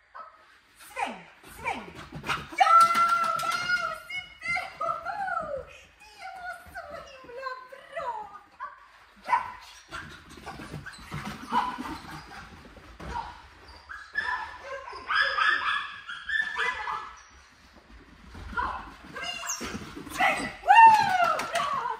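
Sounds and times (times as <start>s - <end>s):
dog whining and yipping: 13.6s - 17.3s.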